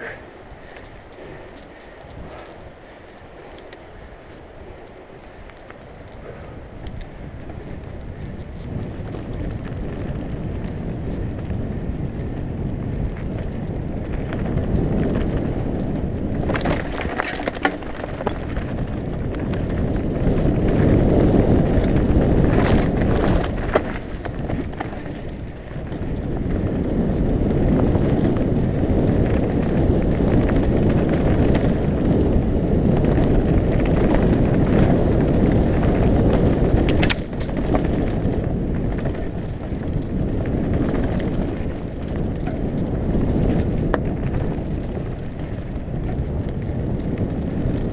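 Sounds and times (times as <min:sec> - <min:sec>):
bike tyre noise on dirt: 0:00.0 - 0:47.9
wind rumble on microphone: 0:00.0 - 0:47.9
bike clattering over rocks: 0:16.3 - 0:26.6, 0:32.8 - 0:47.9.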